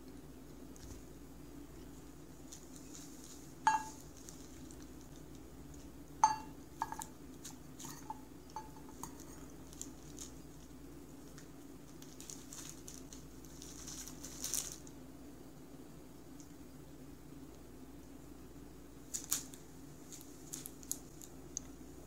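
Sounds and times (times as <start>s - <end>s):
plastic sheet crinkle: 2.0s - 5.9s, 8.8s - 15.0s, 19.1s - 21.4s
metal bowl clinking and ringing: 3.7s - 4.0s, 6.2s - 7.1s, 7.8s - 9.2s.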